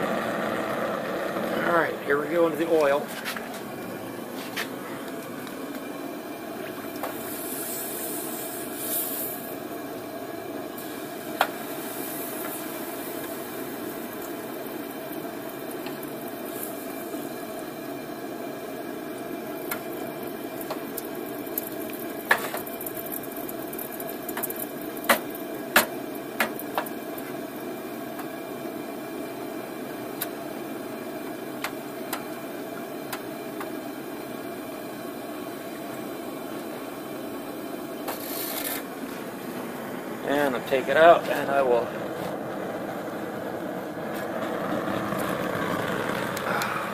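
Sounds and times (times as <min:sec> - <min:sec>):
gas forge burner rushing: 0:00.0 - 0:46.9
oil bubbling: 0:03.4 - 0:40.7, 0:41.8 - 0:46.9
hot blade sizzling in oil: 0:07.1 - 0:09.5, 0:10.8 - 0:17.5.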